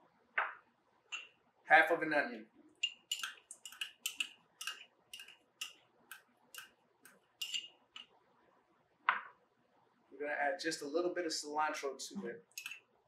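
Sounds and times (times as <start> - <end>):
metal spoon clicking on ceramic: 2.8 - 6.7, 7.4 - 8.1, 12.5 - 12.8.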